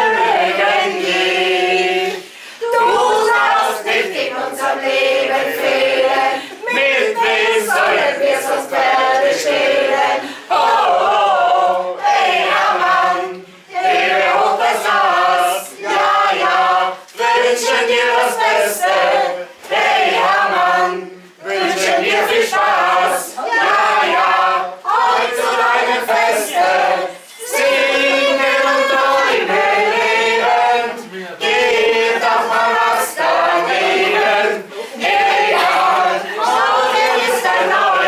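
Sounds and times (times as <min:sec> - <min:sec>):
group of people singing: 0:00.0 - 0:38.0.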